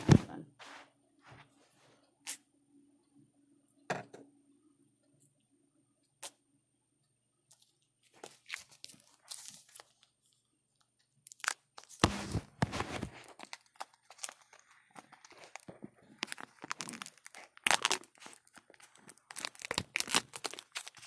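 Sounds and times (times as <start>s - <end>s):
packaging tearing and crinkling: 11.2s - 21.0s.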